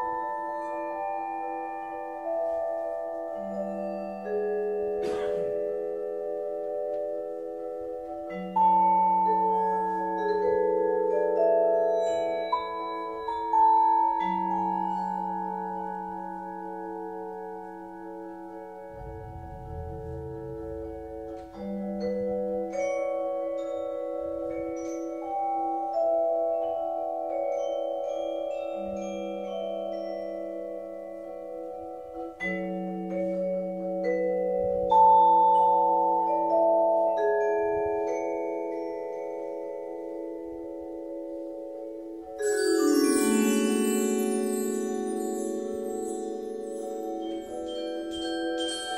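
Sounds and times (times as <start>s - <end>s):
vibraphone and mallet percussion: 0.0s - 48.9s
low mallet note: 18.9s - 22.3s.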